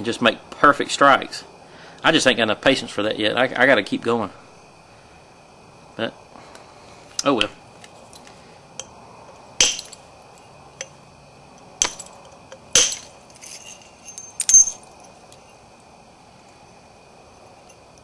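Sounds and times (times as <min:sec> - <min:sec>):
stone knapping clinks: 0:09.6 - 0:10.0, 0:11.8 - 0:15.4.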